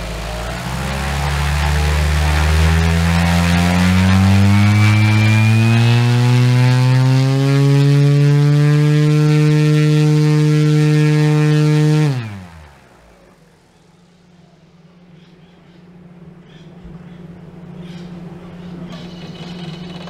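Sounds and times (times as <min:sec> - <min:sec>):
propeller spinning down: 0:00.0 - 0:13.8
electric motor propeller hum: 0:00.0 - 0:14.0.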